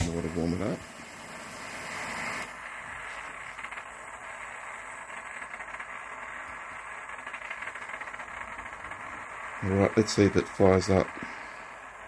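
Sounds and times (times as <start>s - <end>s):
gas burner hissing: 0.0s - 12.0s
faint irregular ticks: 3.0s - 11.8s.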